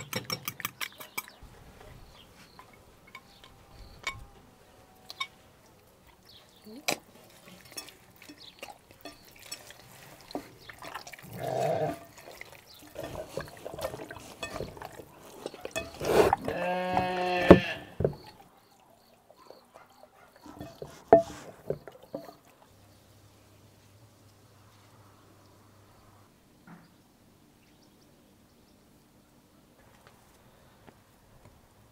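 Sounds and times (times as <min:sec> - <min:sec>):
wet squelching of raw chicken: 0:05.0 - 0:22.7.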